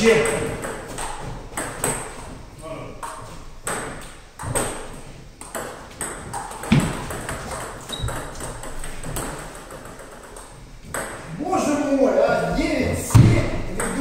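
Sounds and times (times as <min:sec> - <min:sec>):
table tennis ball clicking: 0:05.4 - 0:11.2.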